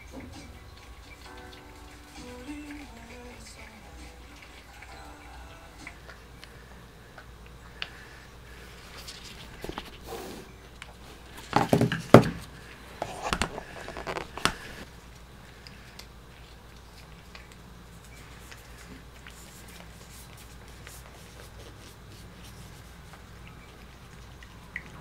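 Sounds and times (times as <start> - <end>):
rustling knocks: 11.4 - 12.5.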